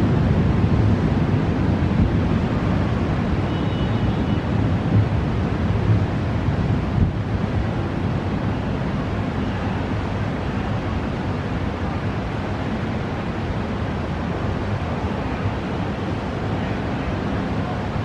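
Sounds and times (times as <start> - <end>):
storm wind buffeting microphone: 0.0 - 3.5, 4.3 - 9.2.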